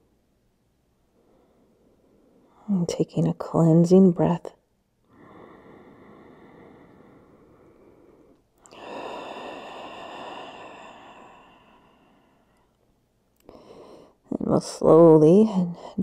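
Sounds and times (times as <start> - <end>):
woman exhaling: 5.1 - 12.7
woman inhaling deeply: 5.1 - 12.8.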